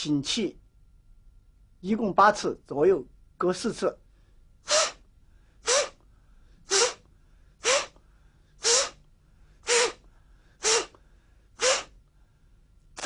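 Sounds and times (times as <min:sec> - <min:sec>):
man's sharp forceful breaths: 0:04.1 - 0:12.6.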